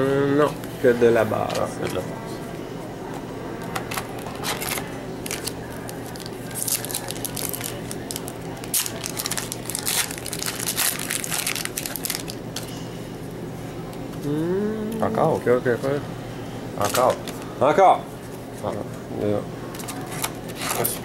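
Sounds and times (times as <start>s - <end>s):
foil wrapper tearing and crinkling: 4.2s - 12.7s, 19.8s - 21.0s.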